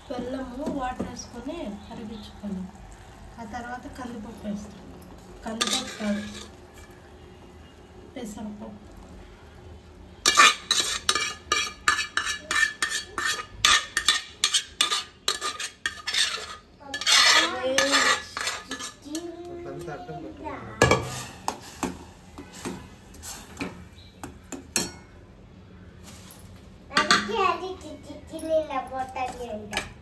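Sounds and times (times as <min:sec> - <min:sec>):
liquid pouring into a pan: 0:00.2 - 0:07.6
spatula scraping a steel saucepan: 0:05.5 - 0:07.0, 0:10.2 - 0:19.2.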